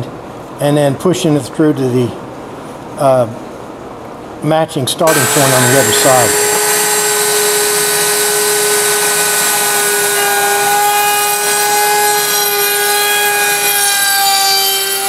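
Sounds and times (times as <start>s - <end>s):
router cutting wood: 5.1s - 15.0s.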